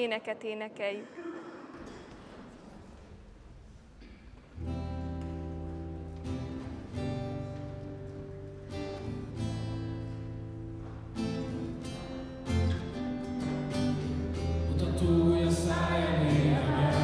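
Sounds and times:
acoustic guitar strumming chords: 4.6 - 17.0.

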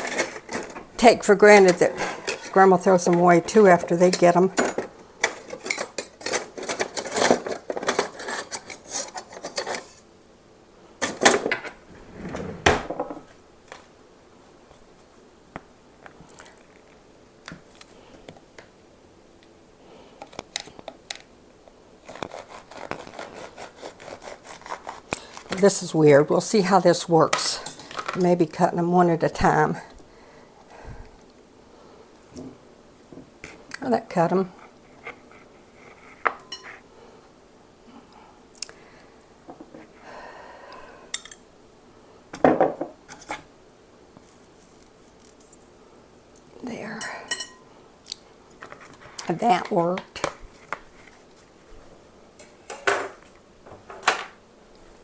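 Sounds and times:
knife and plastic lids clattering: 0.0 - 0.8, 4.0 - 10.0
knife sawing strokes: 22.0 - 25.5.

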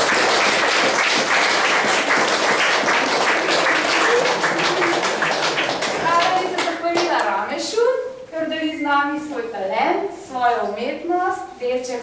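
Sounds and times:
crowd applauding: 0.0 - 7.3.

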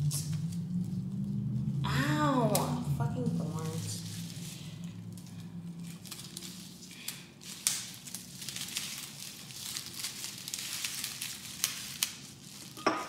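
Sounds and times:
stems and leaves rustling: 0.0 - 13.0.

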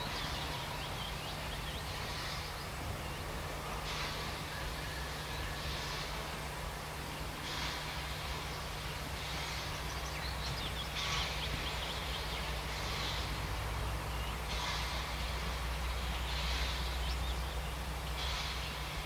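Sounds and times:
steam locomotive chuffing: 0.0 - 19.0
birds chirping: 8.3 - 19.0.

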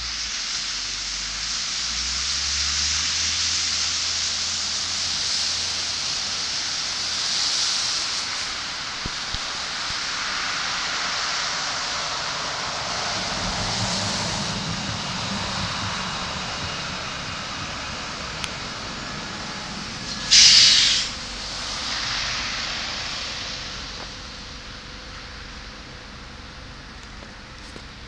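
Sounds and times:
short loud hiss: 0.0 - 13.3, 18.5 - 24.9
tram rumbling on rails: 0.0 - 28.0.

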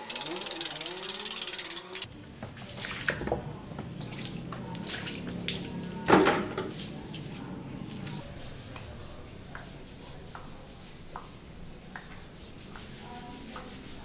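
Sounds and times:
water dripping and splashing: 2.4 - 7.4.

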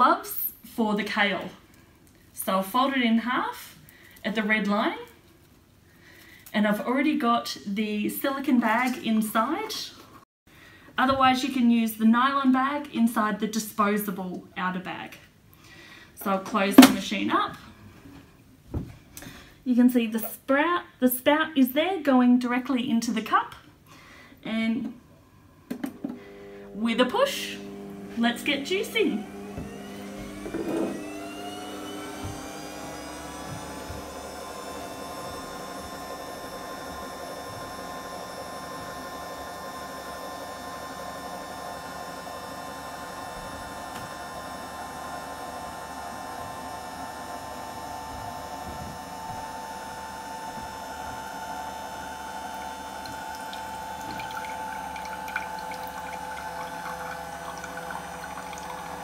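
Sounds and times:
juicer motor whirring: 25.7 - 59.0
juice trickling into a glass: 52.4 - 59.0.

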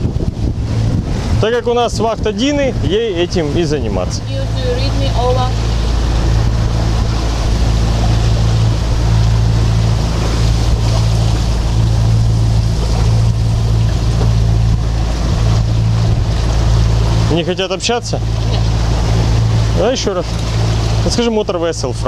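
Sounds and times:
wind rushing: 0.0 - 17.4
boat engine humming: 0.0 - 22.0
sea water along hull: 0.0 - 22.0.

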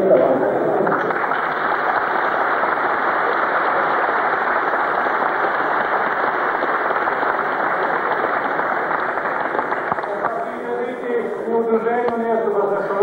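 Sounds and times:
audience applauding: 0.8 - 11.0.

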